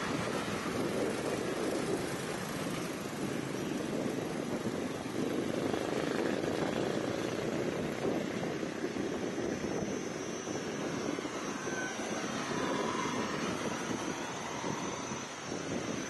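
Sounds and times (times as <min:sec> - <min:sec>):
wind: 0:00.0 - 0:16.0
motorbikes passing: 0:10.6 - 0:16.0.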